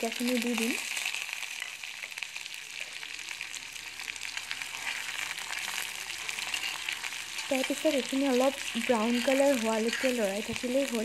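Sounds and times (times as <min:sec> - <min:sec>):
onions sizzling in hot oil: 0:00.0 - 0:11.0
metal spoon stirring: 0:04.7 - 0:10.5.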